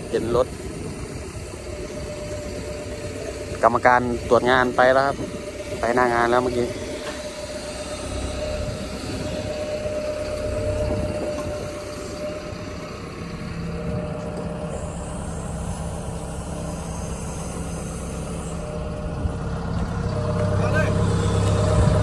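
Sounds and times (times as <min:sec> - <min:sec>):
excavator diesel engine running: 0:00.0 - 0:22.0.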